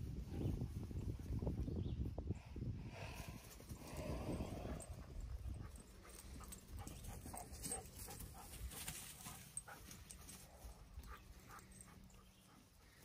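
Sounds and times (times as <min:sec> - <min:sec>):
wind rumble on microphone: 0:00.0 - 0:07.2.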